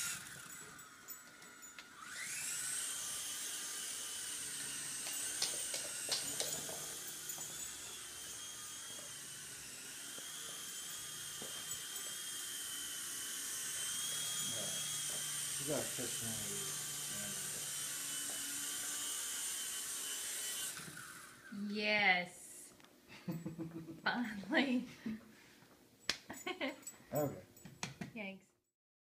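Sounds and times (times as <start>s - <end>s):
toy helicopter rotors whining: 0.0s - 21.7s.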